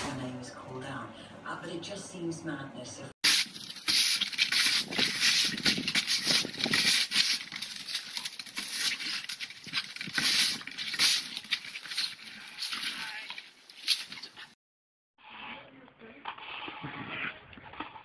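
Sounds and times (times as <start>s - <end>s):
broom bristles scraping wooden boards: 3.2s - 14.5s.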